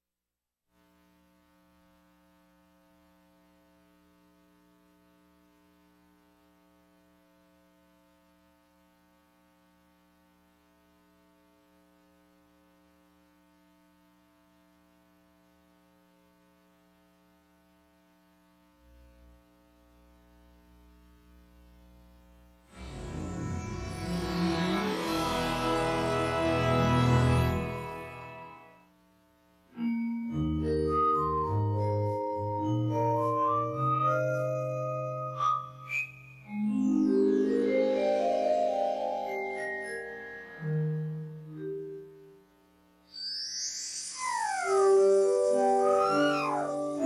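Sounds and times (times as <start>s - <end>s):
electrical mains hum and buzz: 0.7s - 47.0s
low rumble: 22.8s - 26.0s.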